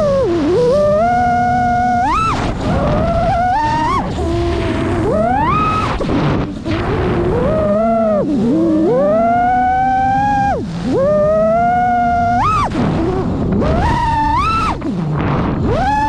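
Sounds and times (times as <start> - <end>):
quadcopter motors whining: 0.0 - 16.0
wind rushing over microphone: 0.0 - 16.0.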